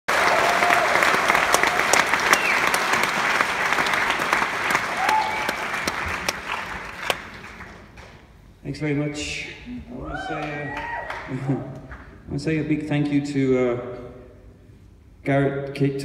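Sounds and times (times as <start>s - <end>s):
audience cheering: 0.1s - 7.5s, 9.9s - 11.5s
audience applauding: 0.1s - 8.1s, 10.1s - 11.7s.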